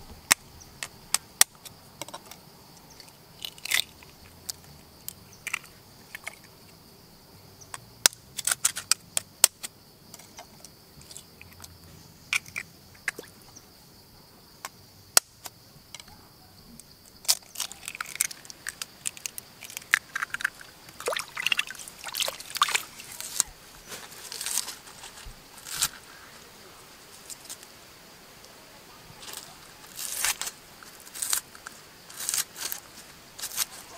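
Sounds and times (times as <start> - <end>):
eggshells tapping and cracking: 3.0 - 6.4, 17.2 - 23.5
egg trickling and slopping: 17.3 - 23.5.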